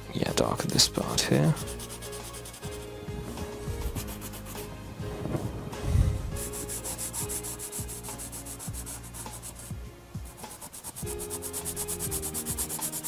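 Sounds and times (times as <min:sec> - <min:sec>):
pencil scratching on paper: 0:01.4 - 0:02.8, 0:03.9 - 0:04.6, 0:06.4 - 0:09.7, 0:10.3 - 0:13.0.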